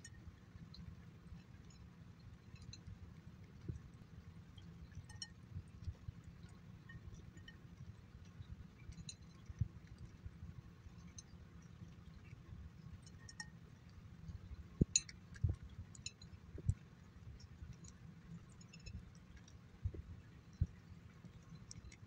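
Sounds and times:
kibble clicking against glass: 0:04.6 - 0:07.6, 0:08.8 - 0:10.0, 0:13.0 - 0:13.6, 0:14.8 - 0:16.8, 0:17.4 - 0:22.0.

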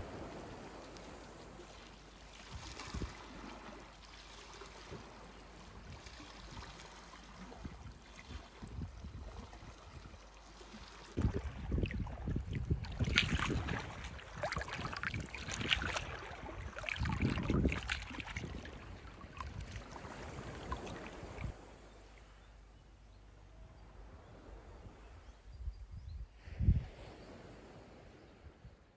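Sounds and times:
wind rumble on microphone: 0:00.0 - 0:01.7, 0:02.4 - 0:03.9, 0:07.4 - 0:21.7, 0:23.6 - 0:28.9
waves lapping against rocks: 0:00.0 - 0:21.7.

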